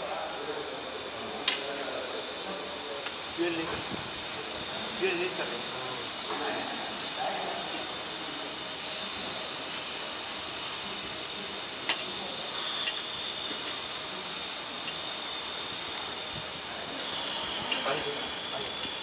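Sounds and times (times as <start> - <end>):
compressed air hissing: 0.0 - 19.0
sharp click: 1.4 - 1.7.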